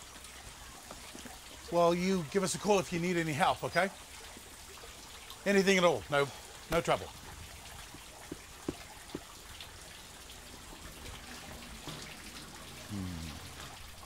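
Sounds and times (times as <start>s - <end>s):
water trickling from hose: 0.0s - 14.0s
low voice: 12.9s - 13.7s.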